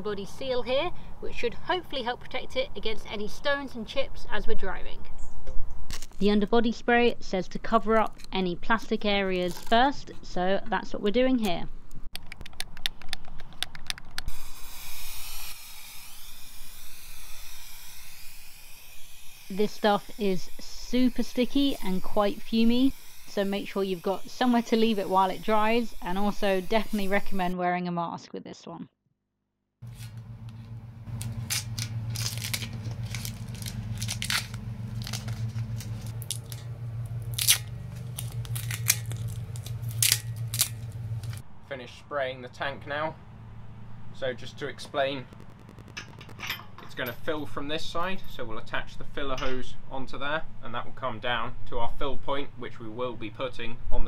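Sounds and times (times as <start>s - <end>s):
tape being peeled off: 5.9s - 6.2s, 9.4s - 10.0s, 29.8s - 41.4s
steady low hum: 29.8s - 49.1s
aerosol can rattling: 31.1s - 36.6s.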